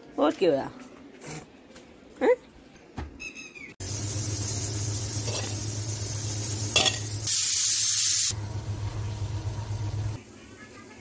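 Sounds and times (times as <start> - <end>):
loud sizzling hiss: 3.8 - 10.9
steady low hum: 8.3 - 10.2.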